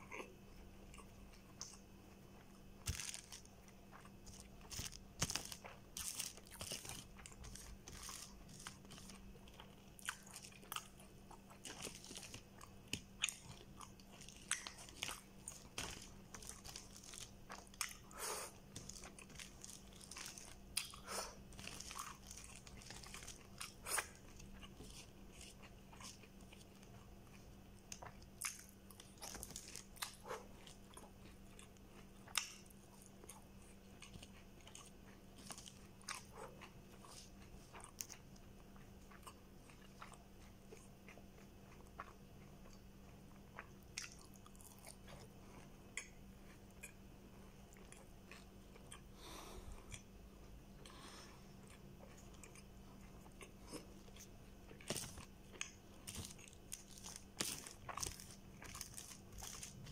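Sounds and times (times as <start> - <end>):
faint steady hum: 0.0 - 59.9
wet crunchy chewing: 0.9 - 45.3, 50.8 - 59.9.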